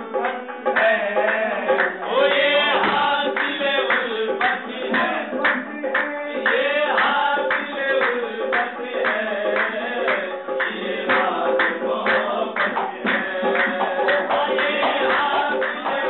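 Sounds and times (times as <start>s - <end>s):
harmonium: 0.0s - 16.0s
men singing: 0.0s - 16.0s
percussion beat: 0.0s - 16.0s.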